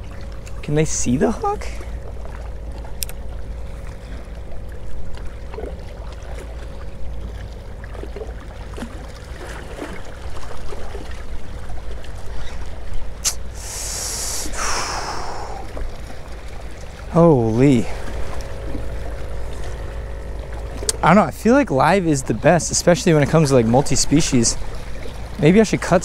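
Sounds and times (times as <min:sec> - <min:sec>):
sharp click: 0:03.0 - 0:03.2, 0:13.2 - 0:13.4
brief hiss: 0:13.2 - 0:15.6.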